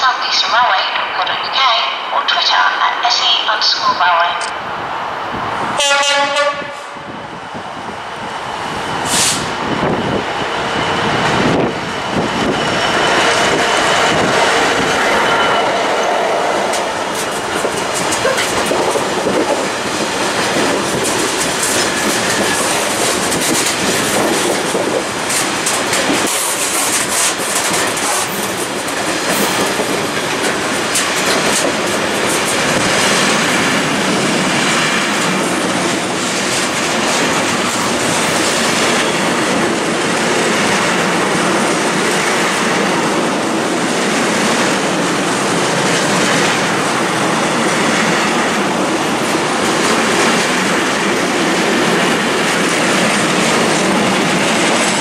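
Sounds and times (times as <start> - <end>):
locomotive passing: 2.8 - 55.0
wagons clattering over rail joints: 17.1 - 33.4.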